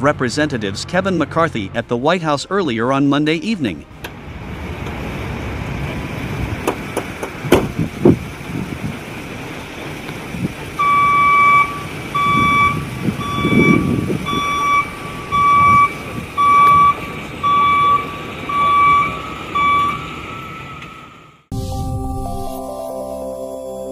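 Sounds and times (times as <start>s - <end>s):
low engine noise: 3.4s - 22.1s
vehicle warning beeper: 10.8s - 21.4s.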